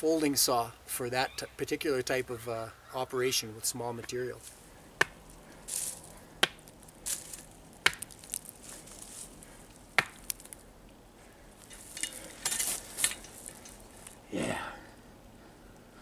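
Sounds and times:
rustling: 0:04.3 - 0:14.2
wooden knocks of logs: 0:06.4 - 0:06.6, 0:07.8 - 0:08.2, 0:10.0 - 0:10.4.

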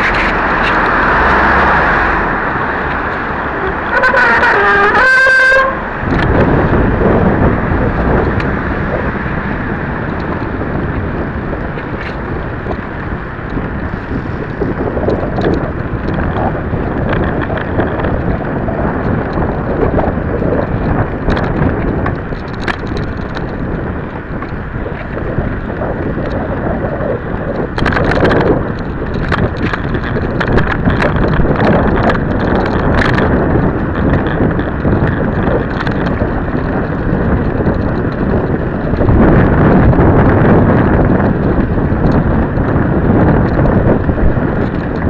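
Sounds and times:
wind buffeting microphone: 0:00.0 - 0:45.0
light clicks and rattles: 0:14.5 - 0:25.2, 0:27.5 - 0:45.0.

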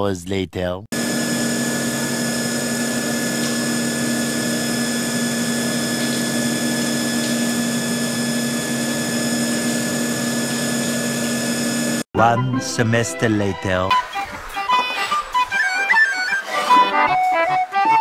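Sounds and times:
coolant hissing: 0:01.0 - 0:12.0
milling machine humming: 0:01.0 - 0:12.1.

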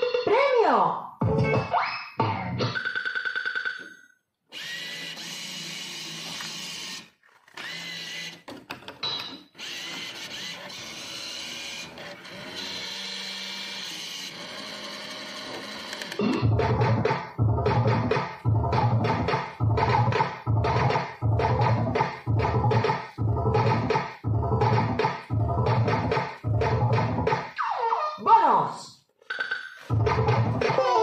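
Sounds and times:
slot machine whirring and rattling: 0:04.6 - 0:08.4, 0:09.0 - 0:18.2
rapidly pulsing electronic tone: 0:16.2 - 0:27.8.

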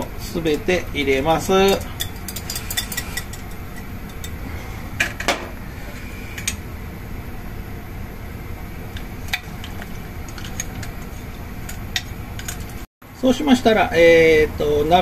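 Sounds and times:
metal utensil scraping glass bowl: 0:01.7 - 0:04.4.

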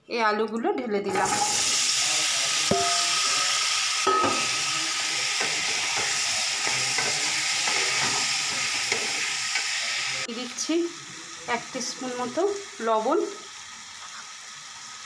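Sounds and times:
potatoes sizzling in oil: 0:01.1 - 0:15.0
spatula scraping and knocking pan: 0:02.7 - 0:03.5, 0:04.1 - 0:09.7.

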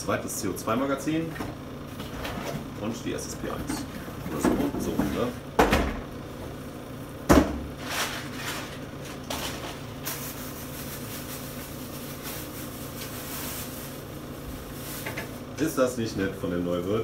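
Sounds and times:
plastic bag rustling: 0:07.7 - 0:15.6.

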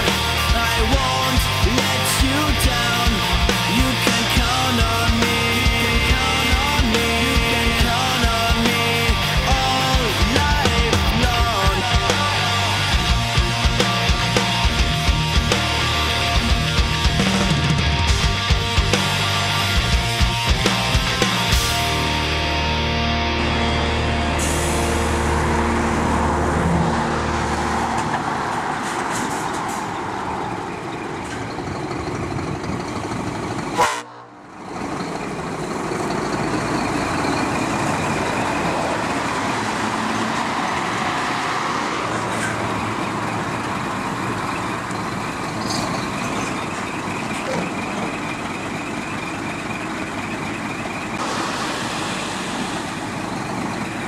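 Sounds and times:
music: 0:00.0 - 0:25.7
road noise: 0:00.0 - 0:54.0
truck diesel engine under load: 0:00.0 - 0:54.0.

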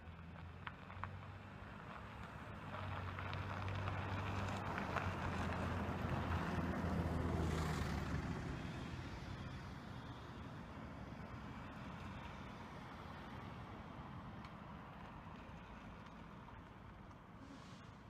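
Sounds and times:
vehicle passing by: 0:02.6 - 0:10.6.

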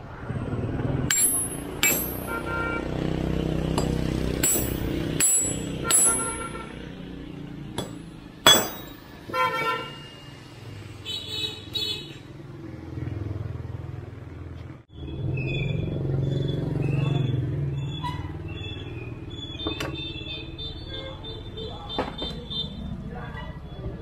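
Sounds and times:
street traffic hum: 0:00.0 - 0:24.0
hammer striking steel: 0:01.1 - 0:02.5, 0:03.7 - 0:06.6, 0:07.7 - 0:09.2
vehicle horn toots: 0:02.2 - 0:03.0, 0:05.8 - 0:06.9, 0:09.3 - 0:10.1.

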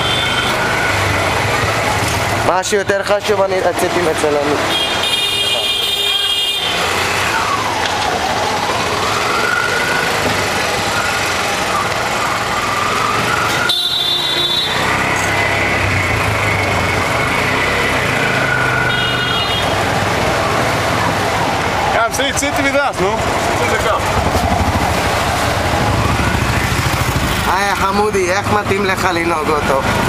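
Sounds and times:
vehicle horn honking: 0:04.7 - 0:06.8, 0:13.5 - 0:15.2, 0:18.8 - 0:19.8.

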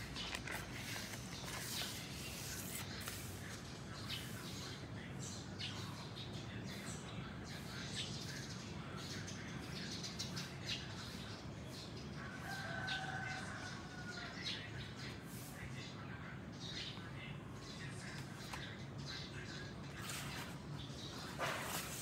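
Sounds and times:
vinyl records and sleeves handled: 0:00.0 - 0:03.3
rooster crowing: 0:12.3 - 0:14.4.

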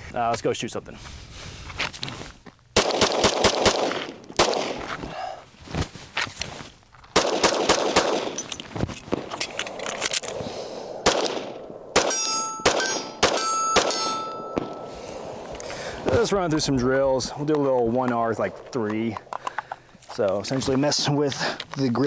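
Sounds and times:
pistol shots: 0:02.8 - 0:04.9, 0:07.2 - 0:08.4, 0:11.0 - 0:14.9
metallic ringing: 0:12.0 - 0:15.2.

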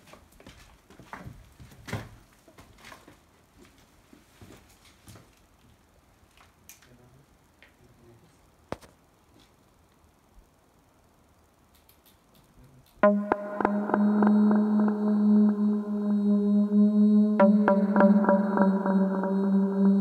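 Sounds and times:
footsteps on wooden planks and rubble: 0:00.0 - 0:05.3.

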